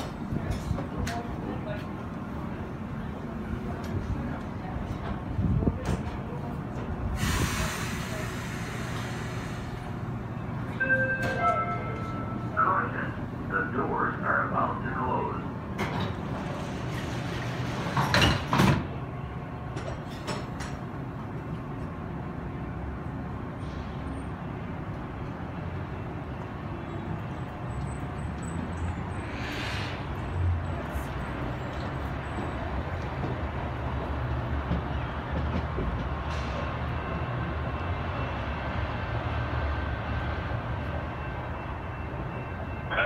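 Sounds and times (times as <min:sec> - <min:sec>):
train rumbling: 0:00.0 - 0:43.0
train doors closing clatter: 0:03.7 - 0:10.0, 0:10.6 - 0:12.6, 0:15.6 - 0:21.6, 0:34.6 - 0:36.9.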